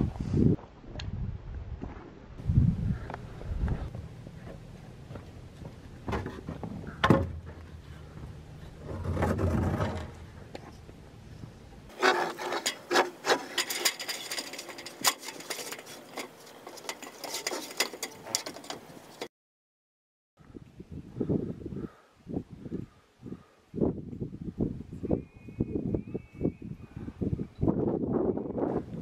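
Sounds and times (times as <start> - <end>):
wood scraping on wood: 11.9 - 19.3.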